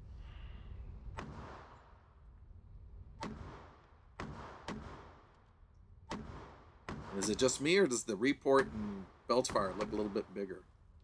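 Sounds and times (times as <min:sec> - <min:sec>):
pistol shots with echo: 0:06.1 - 0:07.5.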